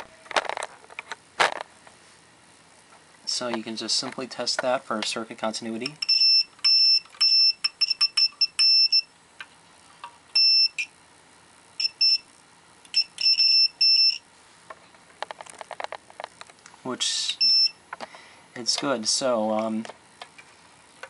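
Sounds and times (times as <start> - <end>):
multimeter continuity beeps: 5.8 - 9.1, 10.3 - 11.0, 11.8 - 12.3, 12.9 - 14.2, 17.4 - 17.8.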